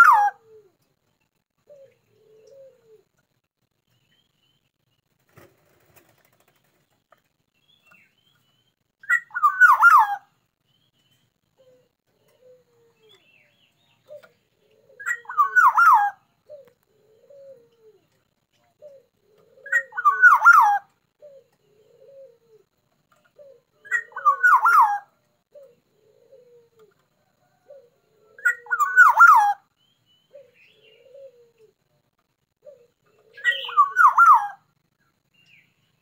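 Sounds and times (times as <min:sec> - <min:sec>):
bird fluty whistling song: 0:07.6 - 0:17.8, 0:18.8 - 0:22.4, 0:23.4 - 0:26.5, 0:27.7 - 0:31.5, 0:32.6 - 0:34.7.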